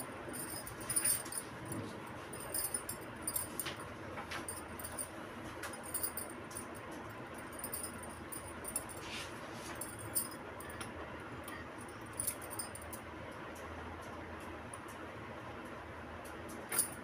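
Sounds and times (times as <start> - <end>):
glass bangles clinking: 0.0 - 3.8, 5.7 - 6.7, 7.4 - 9.0, 9.8 - 10.8, 11.5 - 13.0
low steady hum: 0.0 - 17.0.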